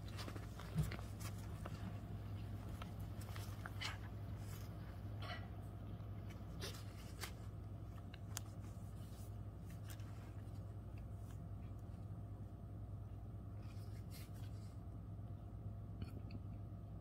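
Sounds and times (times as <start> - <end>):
rustling of paper and bedding: 0.0 - 5.0, 6.2 - 11.8, 13.6 - 14.8
steady low hum: 0.0 - 17.0.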